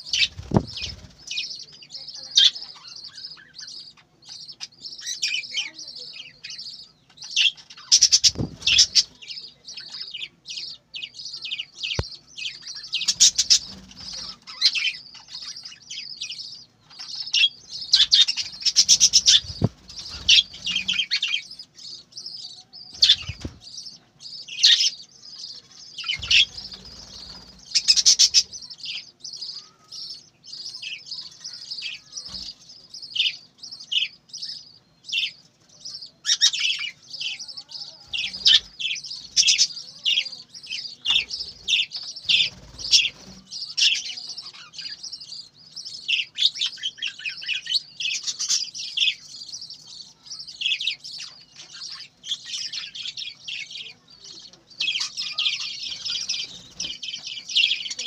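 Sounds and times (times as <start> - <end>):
budgerigars chirping: 0.0 - 58.0
wings flapping: 0.1 - 1.3, 23.0 - 23.7.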